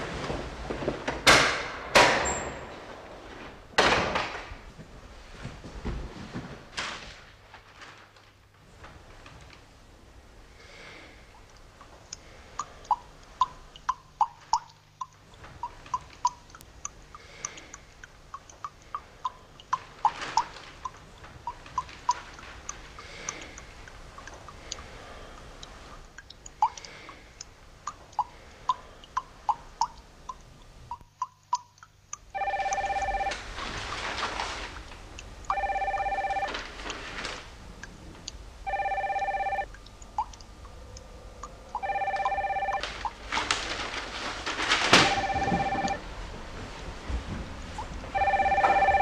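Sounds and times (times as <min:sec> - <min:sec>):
rustling: 0:00.0 - 0:10.2, 0:19.8 - 0:26.0, 0:32.8 - 0:39.6, 0:42.2 - 0:49.0
faint clicks: 0:11.3 - 0:44.9
telephone ringing: 0:32.3 - 0:33.5, 0:35.5 - 0:36.8, 0:38.6 - 0:39.7, 0:41.8 - 0:43.1, 0:45.0 - 0:46.0, 0:48.1 - 0:49.0.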